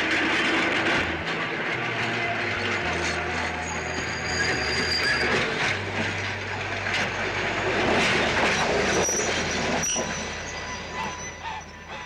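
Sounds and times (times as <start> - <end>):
streetcar wheels rattling on rails: 0.0 - 12.0.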